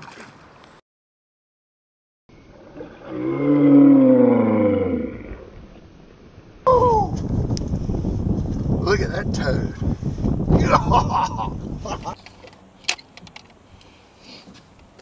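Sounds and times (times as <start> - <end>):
man yelling: 6.7 - 7.2.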